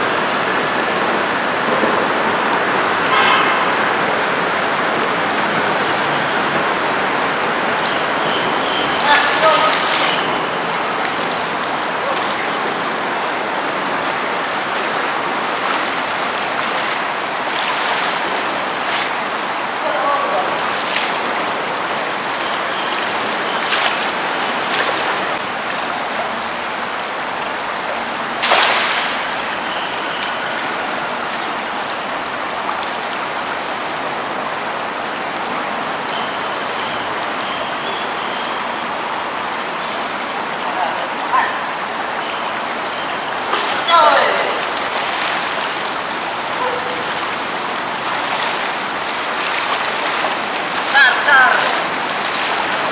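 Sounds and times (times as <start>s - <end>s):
river water flowing: 0.0s - 52.9s
net splashing in water: 8.8s - 13.2s, 14.0s - 19.4s, 20.4s - 26.0s, 28.2s - 30.5s, 43.4s - 52.9s.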